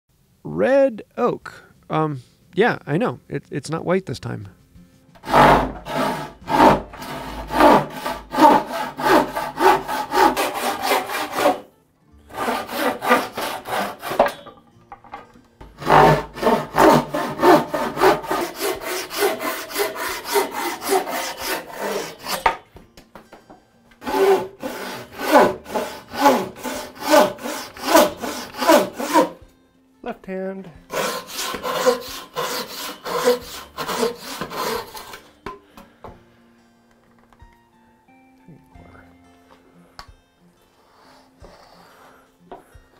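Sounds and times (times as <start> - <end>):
hand saw cutting wood: 5.2 - 11.7, 12.3 - 14.6, 15.6 - 22.6, 24.0 - 29.4, 30.9 - 35.4, 40.8 - 42.7.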